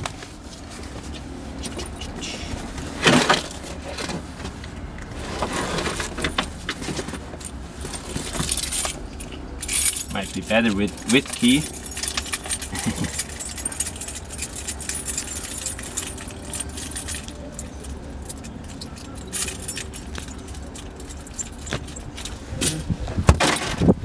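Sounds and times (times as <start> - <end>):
keys jangling: 5.7 - 22.8.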